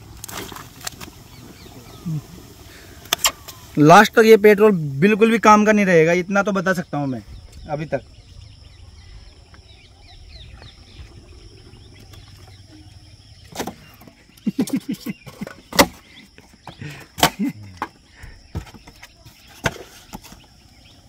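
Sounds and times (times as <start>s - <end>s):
polystyrene squeaking and snapping: 0.0s - 1.2s.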